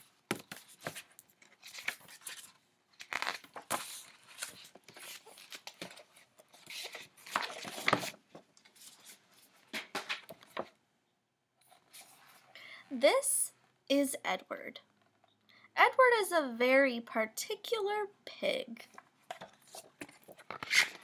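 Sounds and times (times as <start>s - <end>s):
paper pages rustling: 0.0s - 10.8s, 18.9s - 21.0s.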